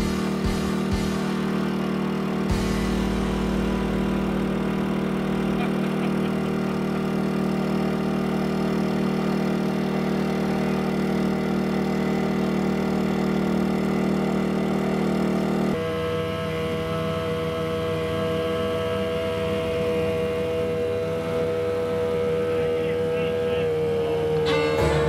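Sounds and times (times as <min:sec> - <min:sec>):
small engine running: 0:00.0 - 0:25.0
deep rumble: 0:02.5 - 0:06.4.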